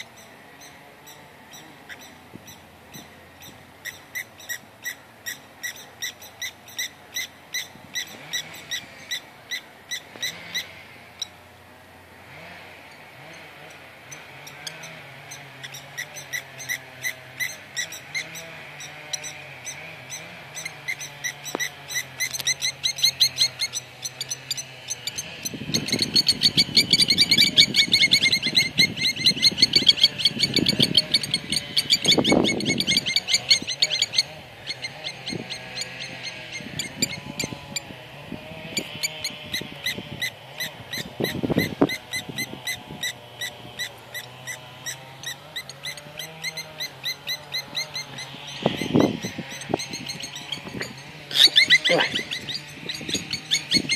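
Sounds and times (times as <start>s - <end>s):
lapwings shrill alarm calls: 51.3s - 53.9s.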